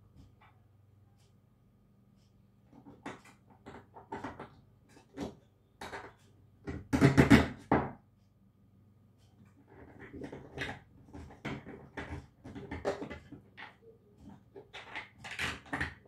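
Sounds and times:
plastic clicks and clacks: 0:02.7 - 0:07.8, 0:09.6 - 0:16.0.

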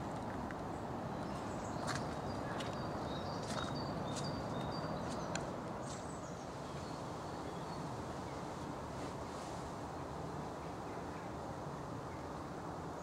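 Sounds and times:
low outdoor noise: 0:00.0 - 0:13.0
footsteps on muddy path: 0:01.2 - 0:06.3
small birds high calls: 0:01.2 - 0:07.8.

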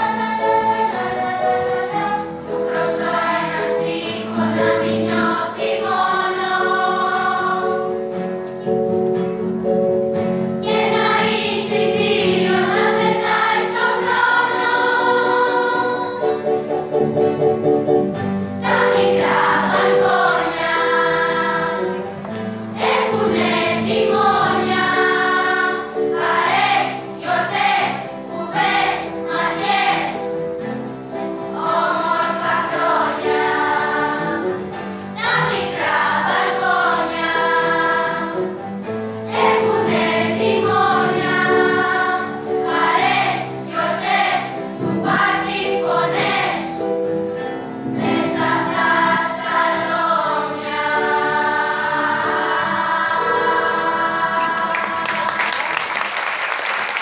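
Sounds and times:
children's choir singing: 0:00.0 - 0:09.0, 0:10.6 - 0:57.0.

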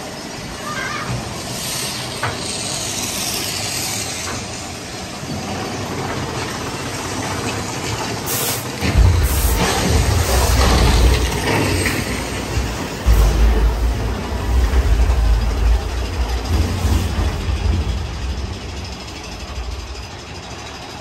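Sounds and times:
roller coaster rushing hiss: 0:00.0 - 0:21.0
heavy low rumble: 0:08.8 - 0:21.0.

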